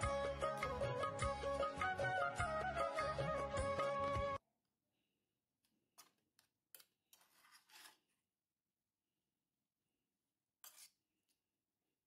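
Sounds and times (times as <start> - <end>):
spoon scraping metal bowl: 7.2 - 8.1, 10.6 - 11.0.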